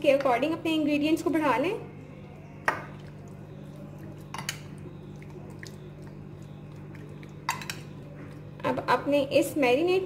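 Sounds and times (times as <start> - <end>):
spoon squelching in marinade: 2.4 - 8.6.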